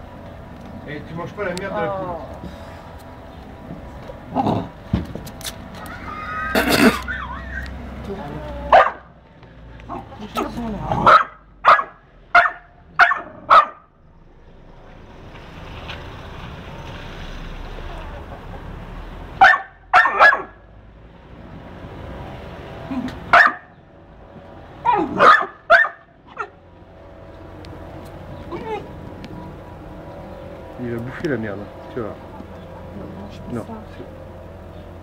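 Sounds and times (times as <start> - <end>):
dog barking: 8.7 - 9.1, 11.0 - 13.9, 19.4 - 20.6, 23.3 - 23.7, 24.9 - 26.6.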